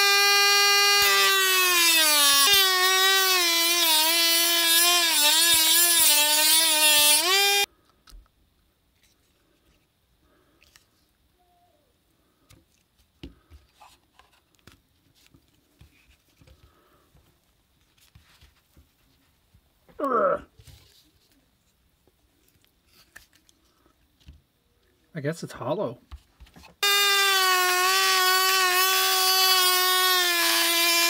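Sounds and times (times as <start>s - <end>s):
rotary tool cutting plastic: 0.0s - 7.7s, 26.8s - 31.0s.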